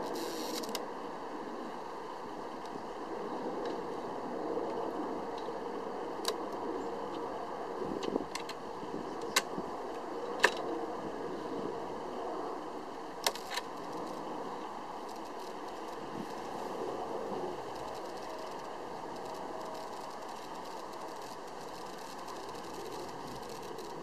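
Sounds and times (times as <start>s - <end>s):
self-timer whirring: 0.0s - 0.8s, 13.0s - 24.0s
shutter clicks: 0.1s - 0.8s.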